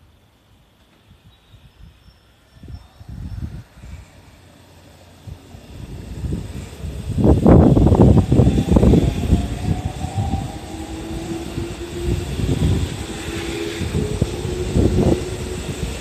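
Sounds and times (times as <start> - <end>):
electric train motors whining: 0.2 - 16.0
train wheels rumbling and knocking: 3.4 - 16.0.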